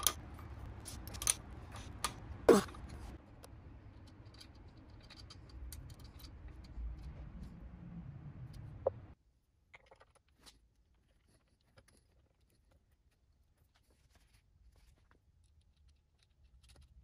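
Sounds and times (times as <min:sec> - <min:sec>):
low hum: 0:00.0 - 0:09.2.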